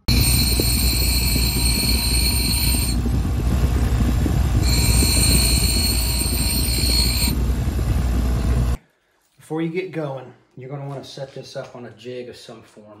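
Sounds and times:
bench grinder humming: 0.0 - 8.8
high grinding screech: 0.0 - 8.8.

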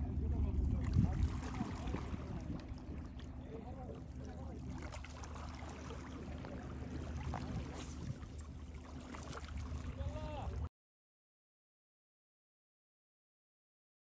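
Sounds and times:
steady low rumble: 0.0 - 10.7.

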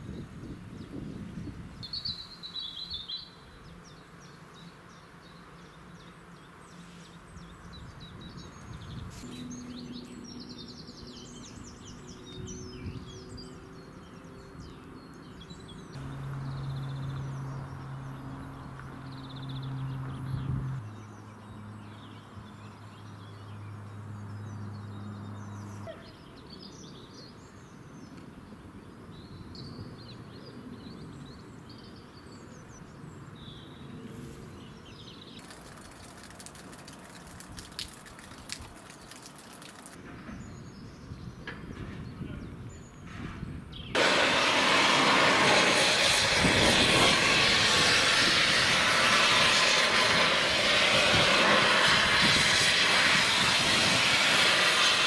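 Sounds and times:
low engine hum: 15.6 - 26.0, 44.0 - 55.0
steam hissing: 44.0 - 55.0.

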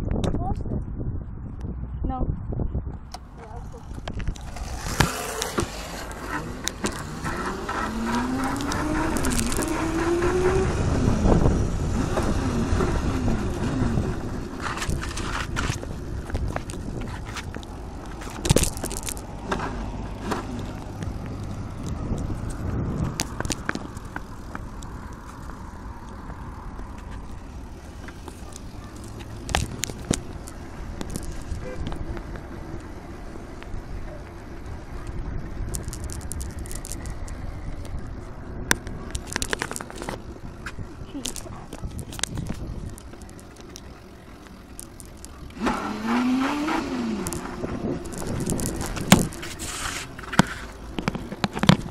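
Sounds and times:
small motorbike engine rumbling: 3.0 - 51.9
small two-stroke engine revving: 4.4 - 14.5, 45.4 - 49.4.

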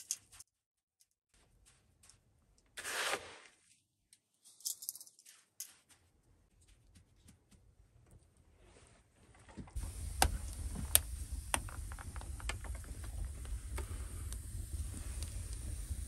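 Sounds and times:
wood fire crackling and popping: 9.8 - 16.0.

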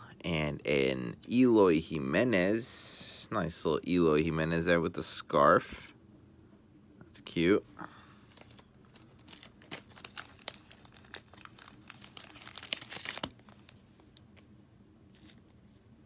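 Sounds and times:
card wrappers crinkling: 8.2 - 14.5, 15.1 - 15.6.

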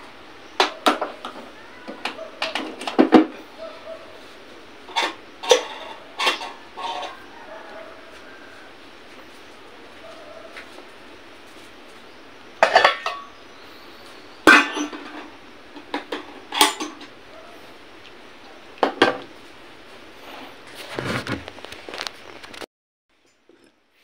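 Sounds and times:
steady background hiss: 0.0 - 22.5
dishes and utensils clattering: 4.9 - 7.7, 12.6 - 13.3, 14.5 - 17.1.

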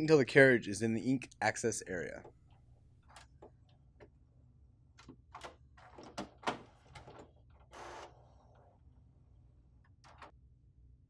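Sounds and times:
printer carriage motor whir: 5.8 - 8.8.

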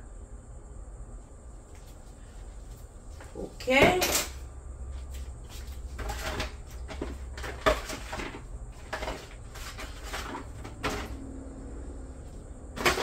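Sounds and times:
aluminium foil pan crinkling: 5.9 - 11.2.

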